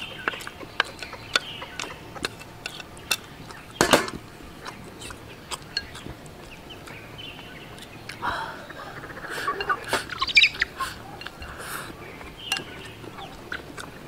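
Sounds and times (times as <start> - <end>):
chopsticks scraping pan and bowl: 0.0 - 7.0, 9.5 - 14.0
pan knocking on wooden table: 3.8 - 4.2
faint bird chirps: 4.7 - 13.7.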